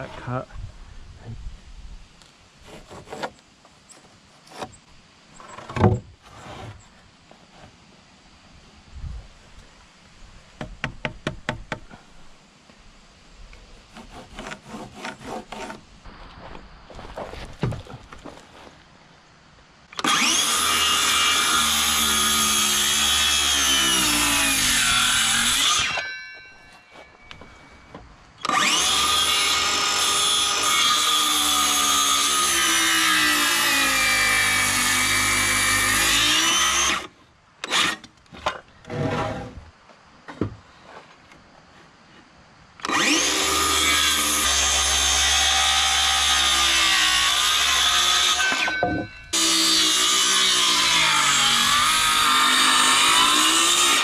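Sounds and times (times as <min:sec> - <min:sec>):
circular saw cutting wood: 0:13.8 - 0:15.8, 0:20.0 - 0:26.2, 0:28.4 - 0:38.0, 0:42.8 - 0:54.0.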